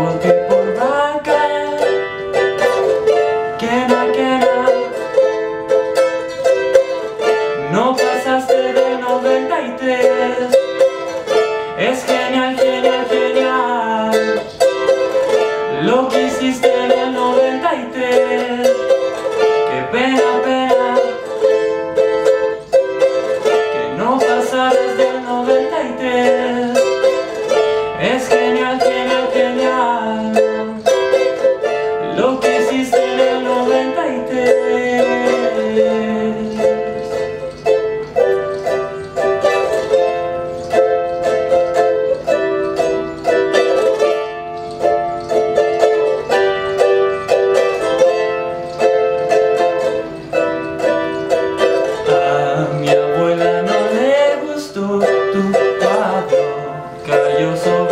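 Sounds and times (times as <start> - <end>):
ukulele melody: 0.0 - 57.9.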